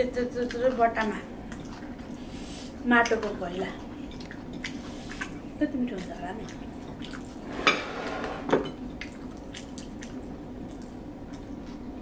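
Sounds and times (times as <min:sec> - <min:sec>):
soft squishing of food: 0:00.0 - 0:07.6, 0:08.7 - 0:12.0
dish scraping: 0:07.4 - 0:08.8.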